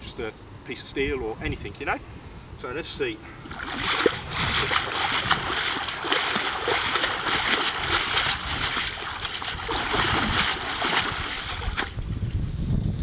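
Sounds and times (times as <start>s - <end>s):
water splashing and sloshing: 3.4s - 12.2s.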